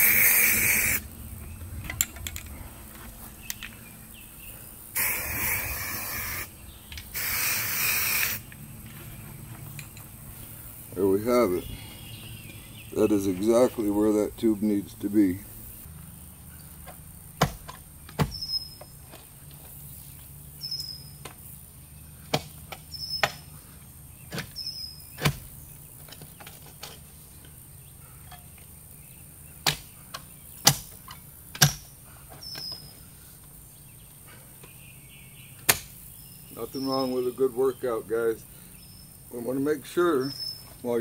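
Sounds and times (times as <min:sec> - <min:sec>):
bird chirping: 0:00.0 - 0:41.0
post hole digger chunking into soil: 0:17.4 - 0:18.6, 0:24.2 - 0:27.1, 0:30.6 - 0:31.9, 0:35.6 - 0:36.0.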